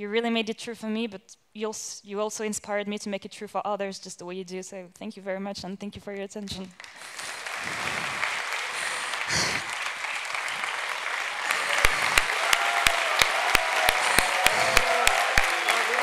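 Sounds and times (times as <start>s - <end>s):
large audience applauding: 6.8s - 16.0s.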